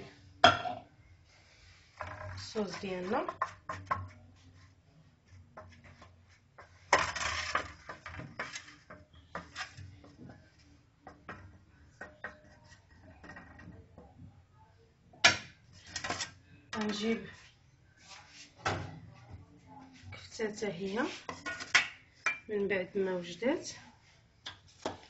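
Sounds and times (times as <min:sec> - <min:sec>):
utensils scraping aluminium pan: 0:05.7 - 0:10.0, 0:15.7 - 0:17.2.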